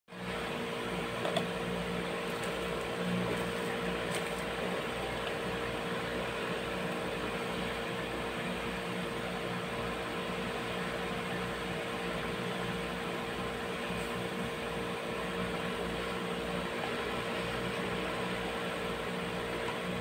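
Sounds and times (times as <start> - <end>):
motor hum with hiss: 0.2 - 20.0.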